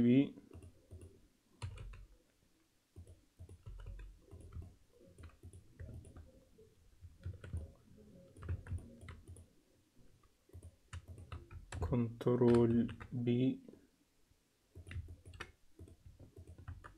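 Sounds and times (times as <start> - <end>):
keyboard and mouse clicking: 0.5 - 2.1, 3.0 - 6.3, 7.0 - 9.5, 10.5 - 13.2, 14.8 - 16.9.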